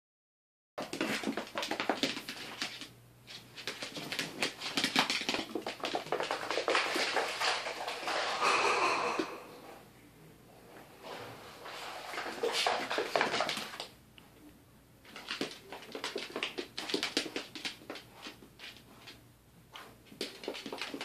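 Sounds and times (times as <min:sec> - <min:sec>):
hooves clicking on wooden floor: 0:00.8 - 0:08.3, 0:12.1 - 0:13.9, 0:15.0 - 0:21.0
pig grunting: 0:08.4 - 0:09.7.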